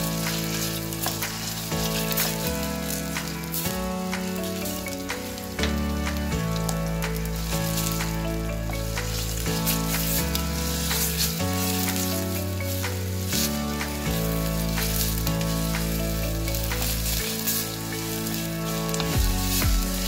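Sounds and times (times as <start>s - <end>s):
wooden spoon scraping a pot: 0.0s - 5.9s
soft background music: 0.0s - 20.0s
vegetables sizzling in hot oil: 0.0s - 20.0s.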